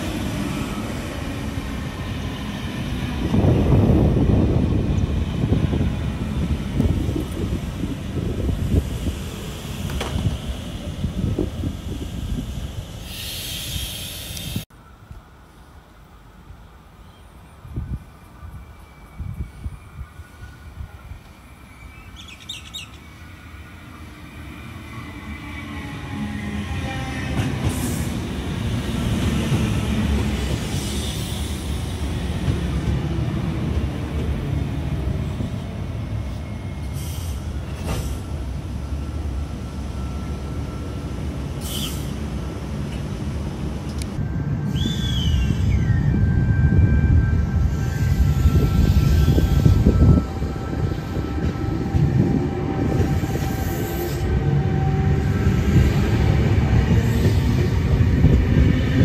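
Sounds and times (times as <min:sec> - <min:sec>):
train wheels rumbling on rails: 0:00.0 - 0:14.7, 0:24.2 - 0:59.0
bird chirping: 0:21.7 - 0:23.2.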